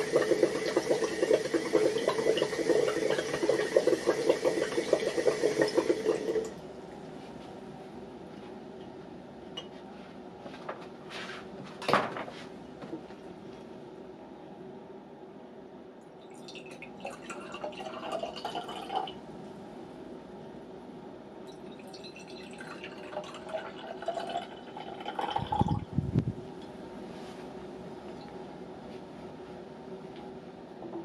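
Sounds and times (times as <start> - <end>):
liquid pouring and splashing: 0.0 - 6.5, 21.7 - 25.9.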